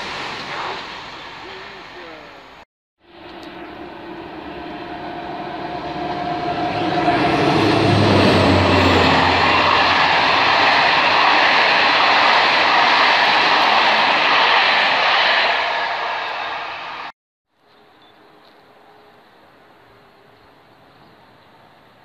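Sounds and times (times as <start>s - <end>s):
passenger train passing: 0.0s - 17.1s.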